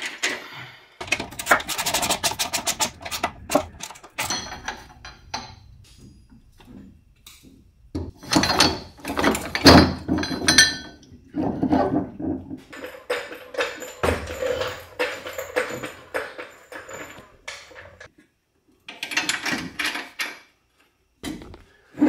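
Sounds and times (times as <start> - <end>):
metal clanks and knocks: 1.0 - 18.1.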